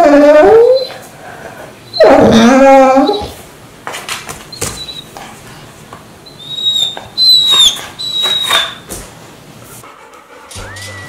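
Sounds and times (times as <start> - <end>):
dog whining: 0.0 - 1.1, 1.9 - 3.4, 4.5 - 5.2, 6.2 - 8.9, 10.4 - 11.0.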